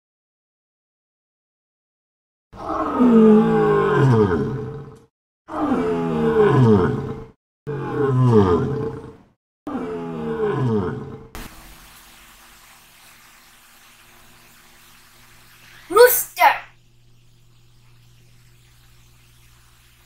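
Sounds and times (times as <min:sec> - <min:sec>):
lion roaring: 0:02.6 - 0:11.3.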